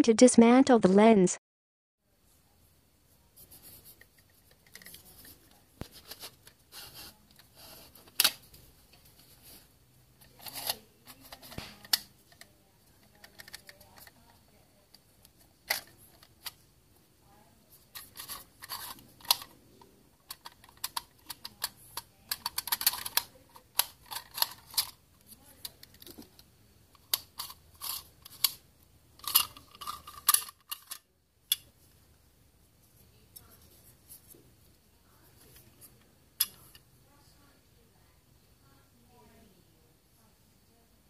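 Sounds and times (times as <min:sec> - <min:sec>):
plastic lens parts clicking: 0:10.3 - 0:14.4, 0:15.2 - 0:16.6, 0:17.9 - 0:19.6, 0:20.2 - 0:25.0, 0:29.2 - 0:31.7.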